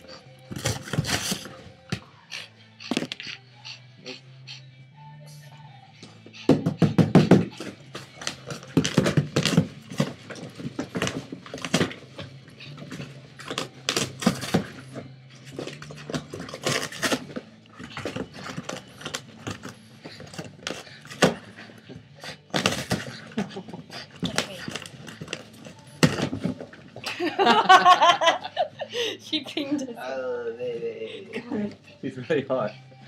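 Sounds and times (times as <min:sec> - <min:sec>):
dog tearing and chewing cardboard: 0:00.5 - 0:01.7, 0:07.2 - 0:26.9.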